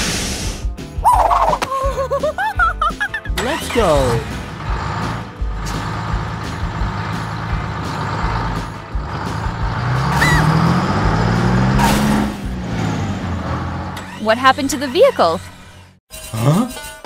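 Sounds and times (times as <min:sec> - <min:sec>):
tractor engine revving: 0:02.8 - 0:16.0.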